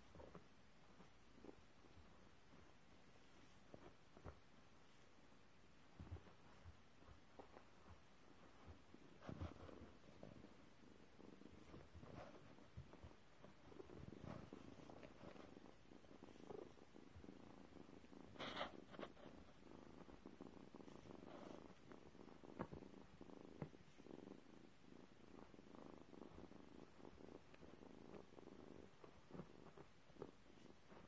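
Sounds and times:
cat purring: 0.0s - 31.0s
scratchy noise: 18.1s - 20.0s.

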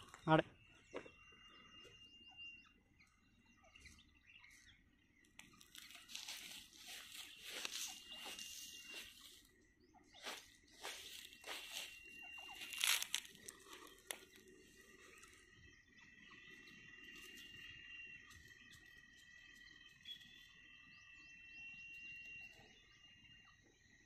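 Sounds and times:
faint steady high tones: 0.0s - 24.0s
tiny faint chirps: 0.0s - 24.0s
dry grass and leaves crunching: 5.3s - 15.7s, 16.3s - 20.5s.

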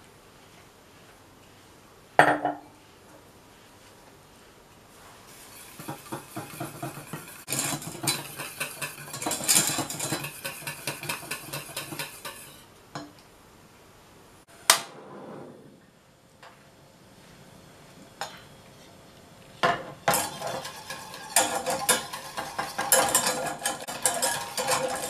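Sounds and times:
whisk clattering against pan: 5.4s - 12.6s, 20.0s - 25.0s.

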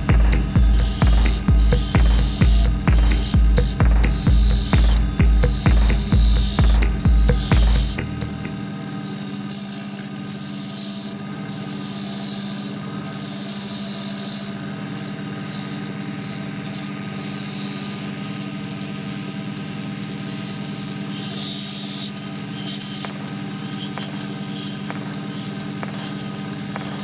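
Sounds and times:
chisel scraping spinning wood: 0.0s - 27.0s
lathe motor humming: 0.0s - 27.0s.

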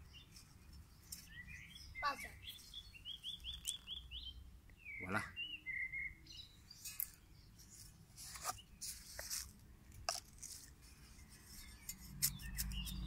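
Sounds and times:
trowel scraping soil: 6.7s - 13.0s.

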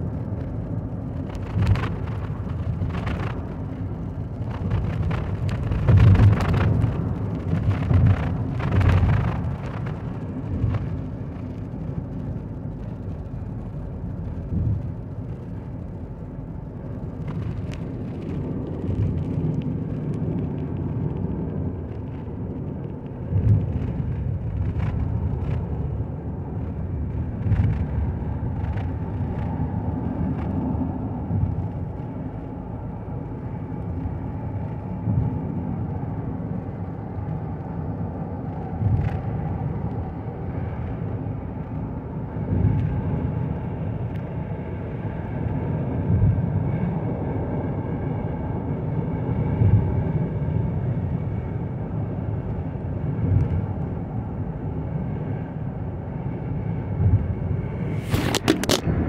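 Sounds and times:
car cabin tyre and engine rumble: 0.0s - 59.0s
low rumble surges: 0.0s - 59.0s.

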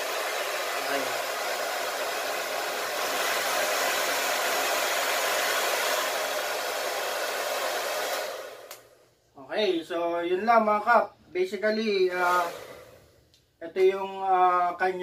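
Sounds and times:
hair dryer blowing: 0.0s - 9.1s, 12.0s - 13.3s.

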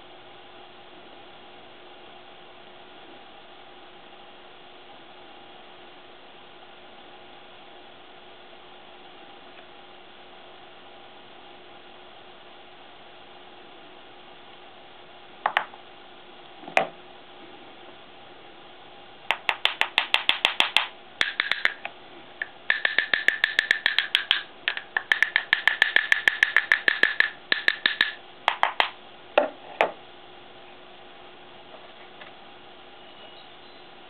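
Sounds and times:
wooden handle tapping ceramic: 22.4s - 29.5s.

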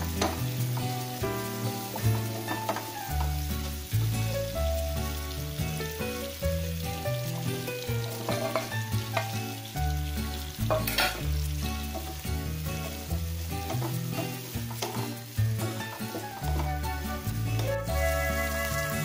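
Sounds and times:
sizzling in hot oil: 0.0s - 19.0s
soft background music: 0.0s - 19.0s
wooden spatula stirring: 11.9s - 18.8s.

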